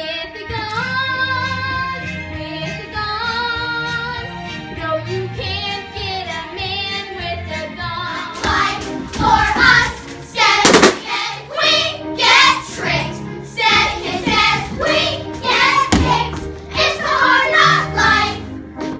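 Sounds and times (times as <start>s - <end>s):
musical accompaniment: 0.0s - 18.9s
people singing show tune: 7.8s - 18.5s
sharp bangs: 10.5s - 11.4s.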